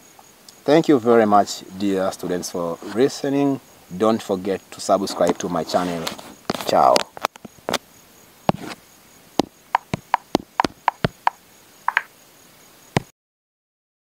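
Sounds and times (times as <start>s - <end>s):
sharp taps and knocks: 9.4s - 12.1s.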